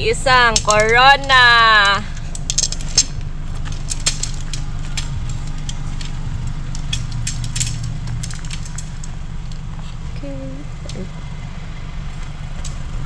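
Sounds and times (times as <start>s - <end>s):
low rumble: 0.0s - 13.0s.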